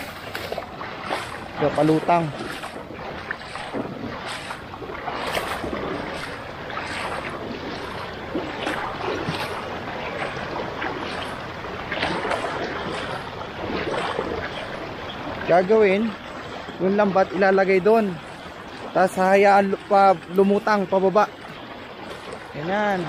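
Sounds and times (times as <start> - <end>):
water splashing from wading: 0.0 - 23.0.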